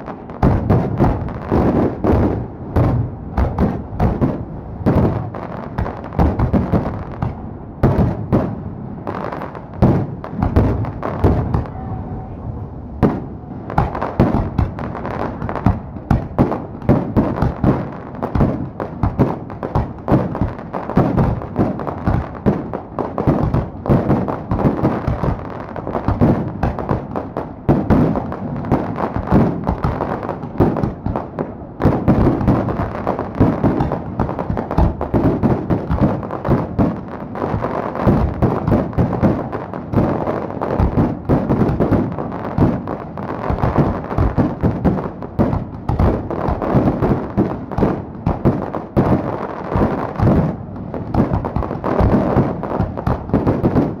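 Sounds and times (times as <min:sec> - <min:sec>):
fireworks bursting: 0:00.0 - 0:54.0.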